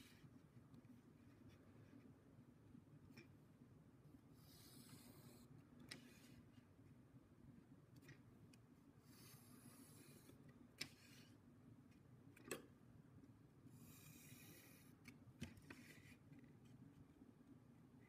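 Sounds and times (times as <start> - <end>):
pencil scratching on paper: 4.4 - 5.5, 9.1 - 10.4.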